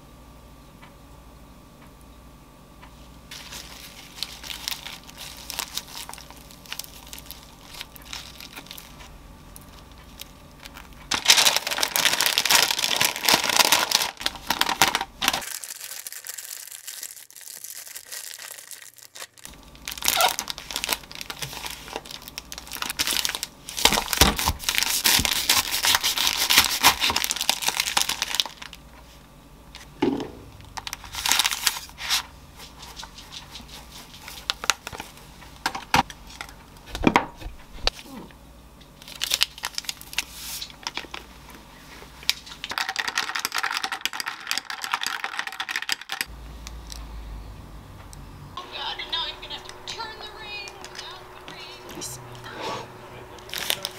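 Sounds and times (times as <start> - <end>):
parchment paper crinkling: 3.3 - 29.2, 30.6 - 37.0, 39.0 - 47.0, 53.4 - 53.9.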